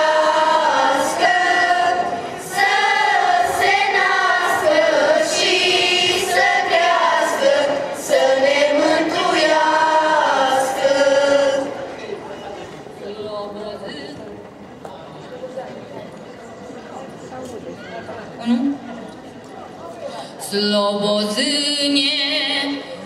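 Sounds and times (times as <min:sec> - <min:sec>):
girls choir singing a carol: 0:00.0 - 0:12.1.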